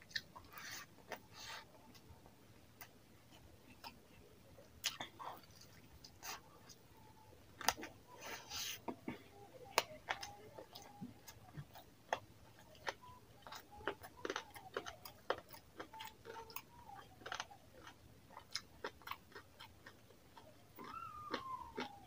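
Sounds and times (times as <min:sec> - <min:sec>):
fingers squishing rice: 0:04.8 - 0:22.0
wet chewing: 0:09.6 - 0:22.0.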